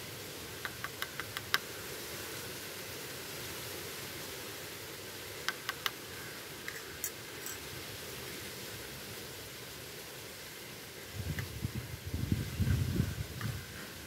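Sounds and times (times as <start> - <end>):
steady hiss: 0.0 - 14.0
metal spoon clinking on pan: 6.7 - 7.6.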